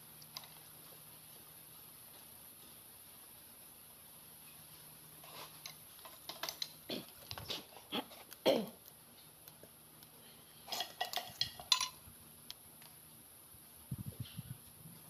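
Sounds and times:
hand tools clinking on metal: 10.7s - 12.0s.

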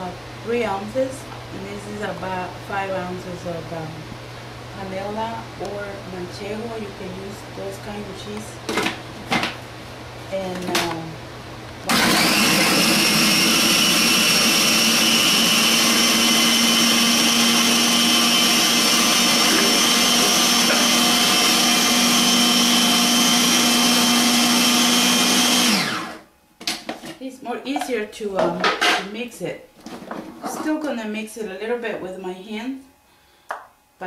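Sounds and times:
food processor motor running: 11.9s - 26.3s.

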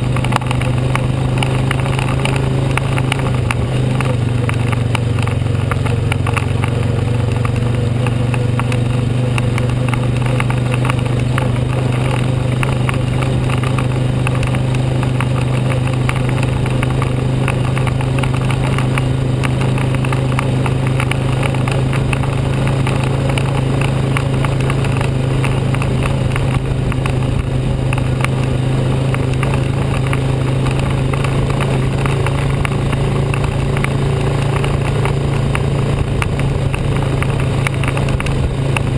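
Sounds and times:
dense crackle of noise: 0.0s - 38.9s
quad bike engine running: 0.0s - 38.9s.

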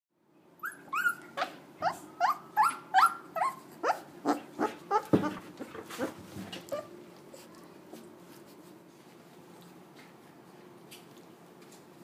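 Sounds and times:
puppy yelping: 0.6s - 7.0s.

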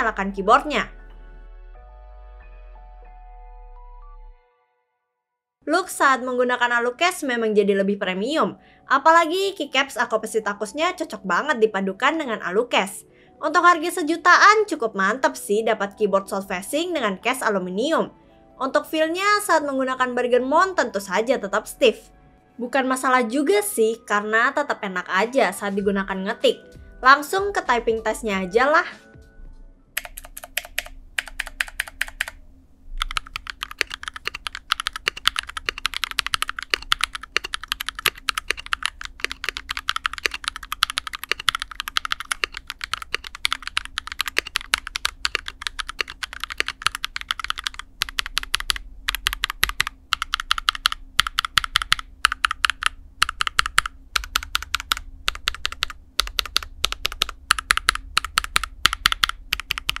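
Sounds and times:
fast mechanical keyboard typing: 30.0s - 32.4s, 33.0s - 60.0s.

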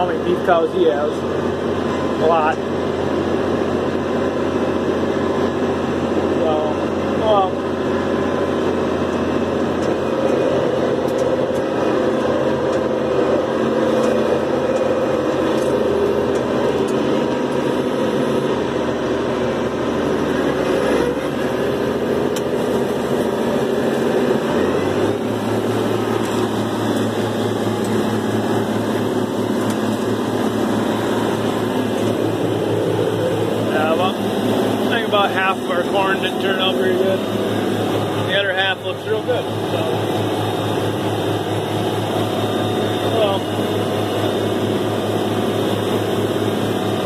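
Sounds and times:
tractor diesel engine under load: 0.0s - 47.0s.

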